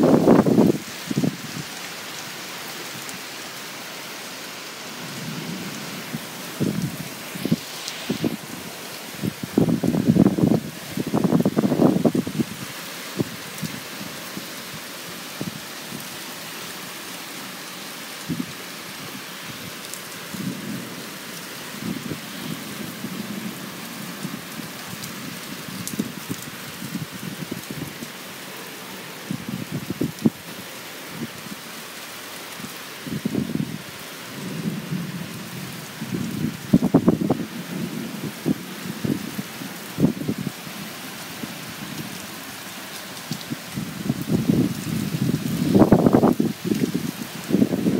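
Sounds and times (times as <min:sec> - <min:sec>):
heavy rain pouring: 0:00.0 - 0:47.9
low wind gusts: 0:00.0 - 0:47.9.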